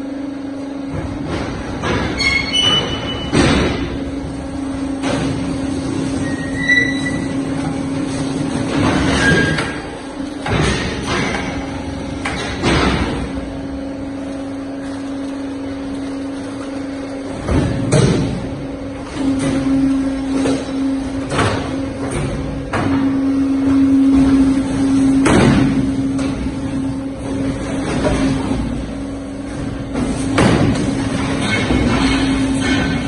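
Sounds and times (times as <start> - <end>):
machine motor hum: 0.0 - 33.0
high metallic squeals: 6.2 - 7.4.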